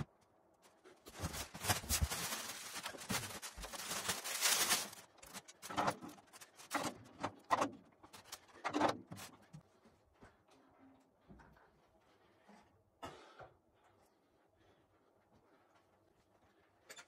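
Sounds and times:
plastic wrapping crackling: 0:00.9 - 0:06.8.

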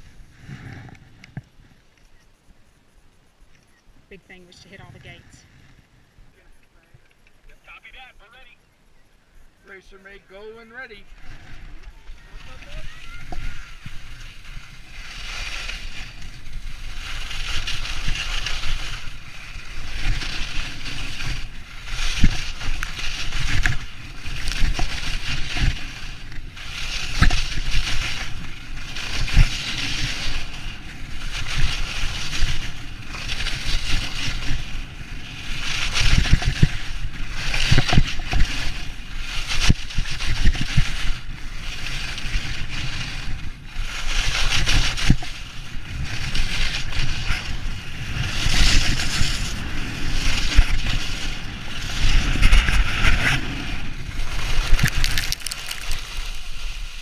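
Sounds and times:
skis hissing over snow: 0:00.0 - 0:02.8, 0:09.6 - 0:57.0.

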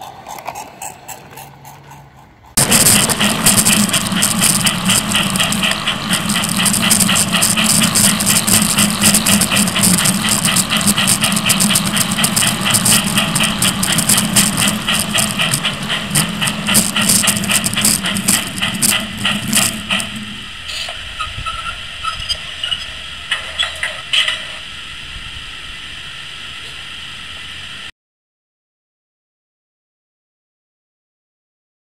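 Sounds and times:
model locomotive humming: 0:00.0 - 0:27.9
rapid clicking on track: 0:00.2 - 0:24.6.

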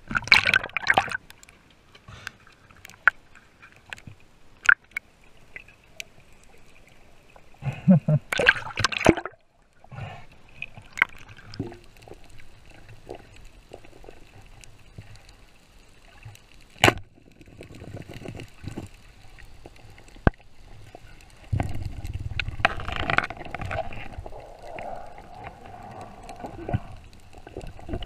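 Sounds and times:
muffled underwater sound: 0:21.0 - 0:28.0.

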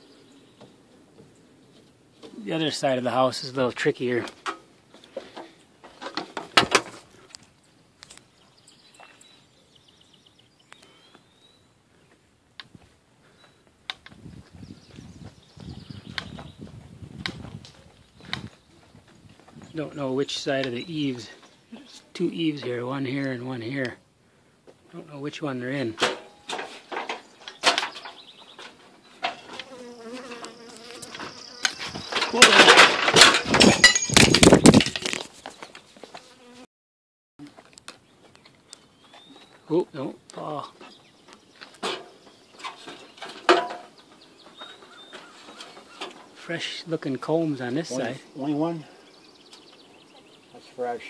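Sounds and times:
bees buzzing: 0:29.3 - 0:32.5
sharp knocks and bumps: 0:31.2 - 0:35.4.

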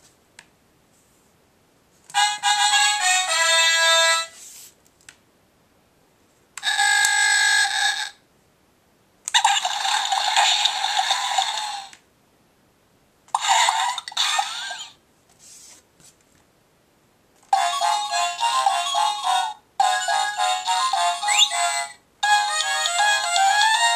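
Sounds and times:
bouncy electronic tune: 0:17.6 - 0:23.9.

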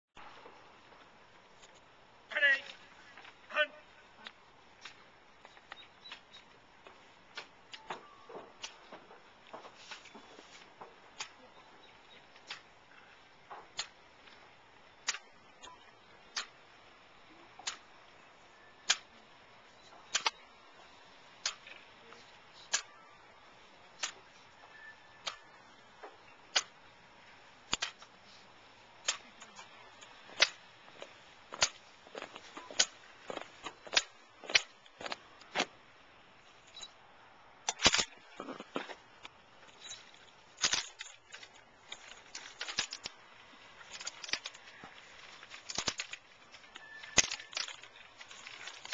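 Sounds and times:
hands slapping rifles: 0:27.7 - 0:28.1
marching footsteps on concrete: 0:30.2 - 0:35.7.

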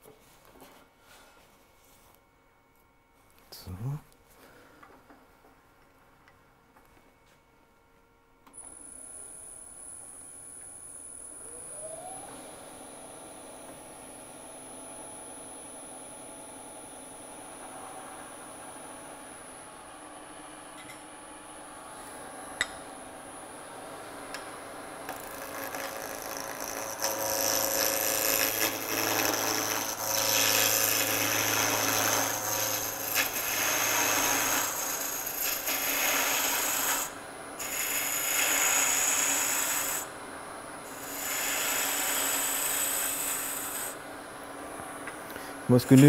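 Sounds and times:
turning tool scraping wood: 0:25.1 - 0:40.0, 0:41.0 - 0:44.0
wood lathe running: 0:25.1 - 0:40.1, 0:40.9 - 0:44.0.

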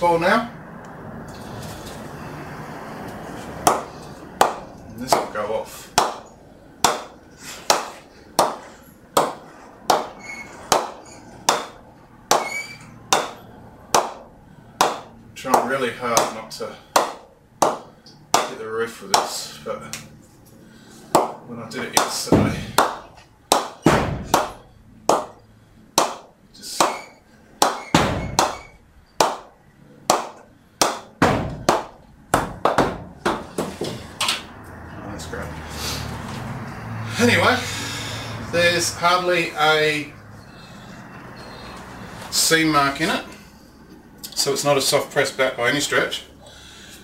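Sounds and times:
ball bouncing on cricket bat: 0:22.0 - 0:25.4, 0:26.0 - 0:29.5.

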